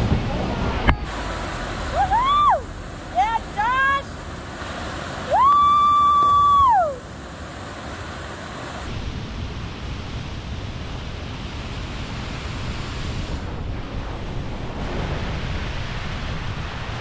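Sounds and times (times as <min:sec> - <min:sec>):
waterfall rushing: 0:00.0 - 0:08.9
wind buffeting microphone: 0:00.0 - 0:17.0.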